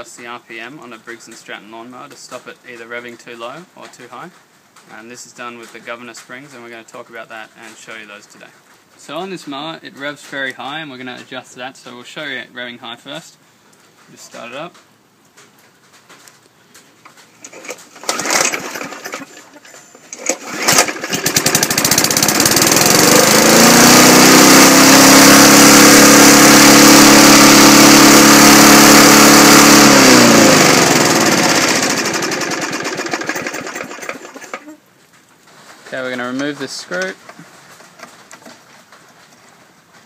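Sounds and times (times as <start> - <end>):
lawn mower engine starting and revving: 17.4 - 34.8.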